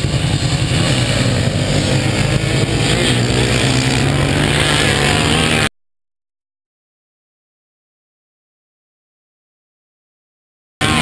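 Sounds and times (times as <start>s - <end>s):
off-road engines racing: 0.0s - 5.7s.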